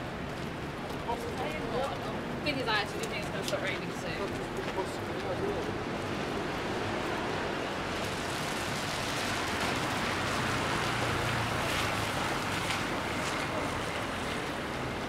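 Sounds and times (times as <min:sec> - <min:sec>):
tyres on wet street: 0:00.0 - 0:15.0
vehicle passing: 0:04.8 - 0:15.0
rain hiss: 0:05.7 - 0:15.0.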